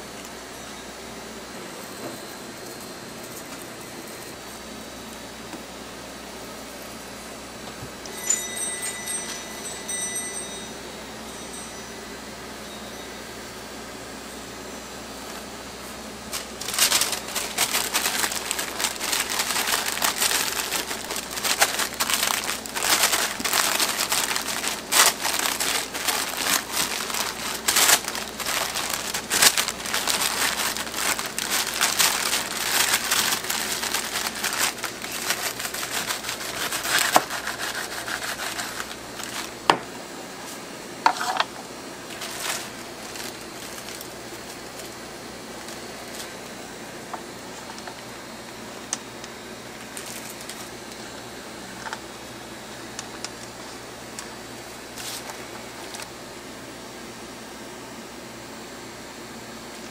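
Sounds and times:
paper crinkling and rustling: 0:16.3 - 0:39.6, 0:42.0 - 0:46.4, 0:49.8 - 0:51.0, 0:54.9 - 0:56.1.

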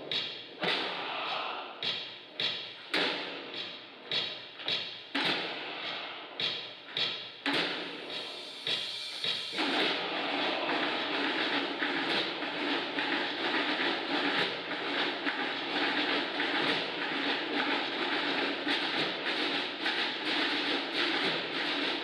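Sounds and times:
massed drum roll: 0:07.4 - 0:22.0.

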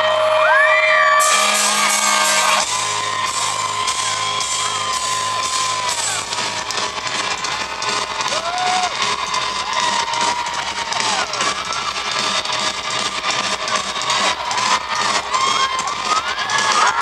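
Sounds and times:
cymbal wash: 0:00.0 - 0:07.9
crowd yelling and whooping: 0:00.0 - 0:17.0.

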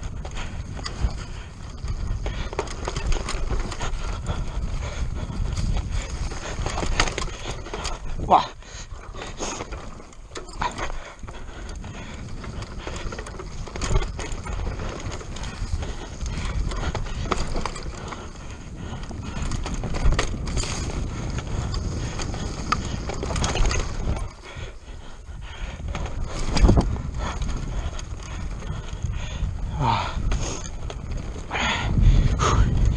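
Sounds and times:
tyre noise on dirt: 0:00.0 - 0:24.8
bike rattling over bumps: 0:00.0 - 0:32.9
wind rumble on microphone: 0:00.0 - 0:32.9.

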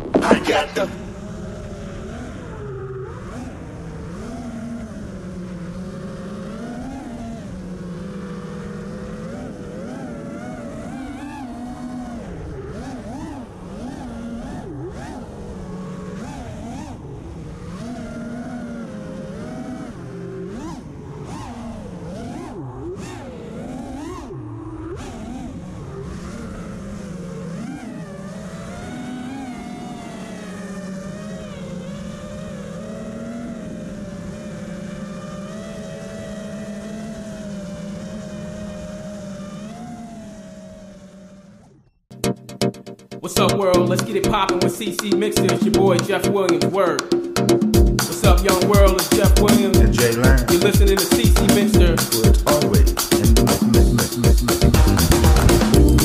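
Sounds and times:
drone motors whining: 0:00.0 - 0:42.0.

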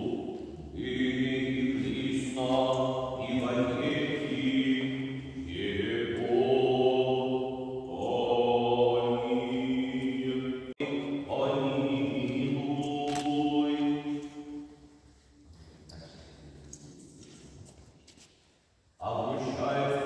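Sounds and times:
choir chanting unaccompanied: 0:00.0 - 0:14.8, 0:19.0 - 0:20.0.

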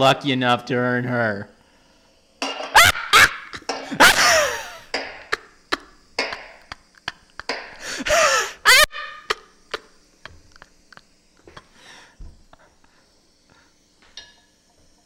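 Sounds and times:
high whining cry: 0:02.8 - 0:04.9, 0:07.8 - 0:09.9.

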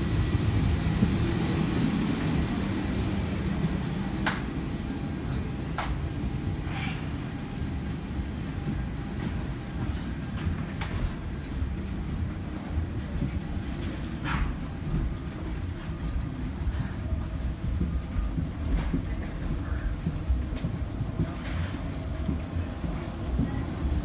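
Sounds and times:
low rumble of people-mover station: 0:00.0 - 0:24.0.

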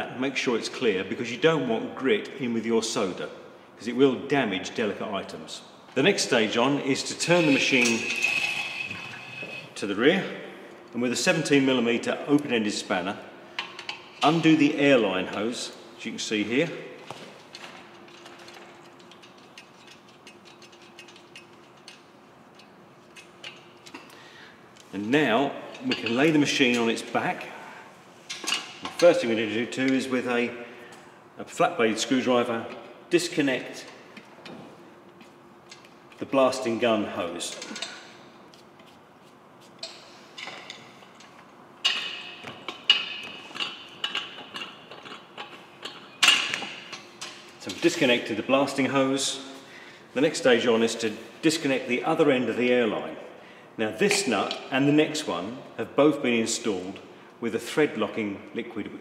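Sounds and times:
faint steady hum: 0:00.0 - 0:59.0
hose scraping off metal fitting: 0:07.1 - 0:09.8
spanner clicking on metal nut: 0:18.9 - 0:24.0.

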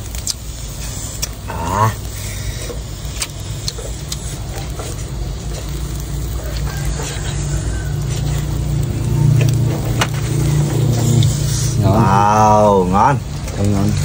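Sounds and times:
low rumble: 0:03.0 - 0:14.0.

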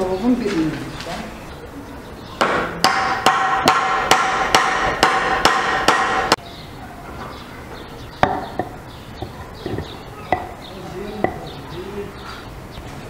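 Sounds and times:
hammer strikes on metal: 0:02.4 - 0:06.4.

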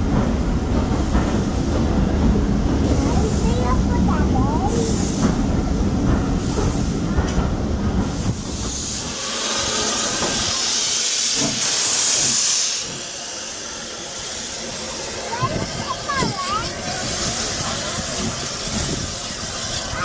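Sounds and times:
steam hissing: 0:00.6 - 0:20.0.

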